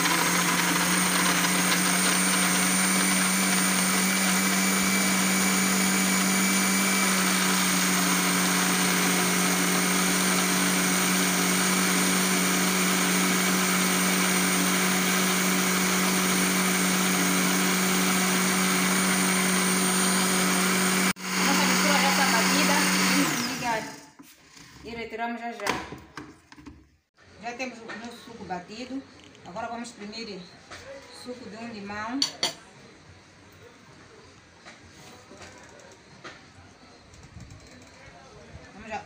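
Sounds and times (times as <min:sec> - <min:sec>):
blender motor running: 0:00.0 - 0:24.1.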